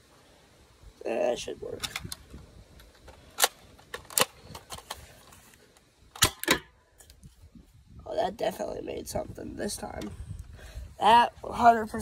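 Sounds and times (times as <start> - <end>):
plastic clicks of toy blaster: 3.0 - 5.0
toy blaster firing cracks: 3.3 - 5.0, 6.1 - 6.7.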